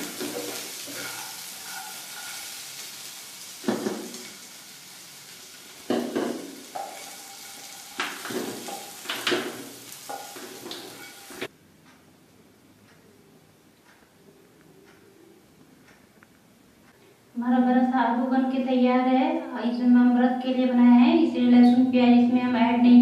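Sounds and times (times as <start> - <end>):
spatula scraping a pan: 0.0 - 4.4, 5.9 - 11.5
food sizzling in a frying pan: 0.0 - 11.5.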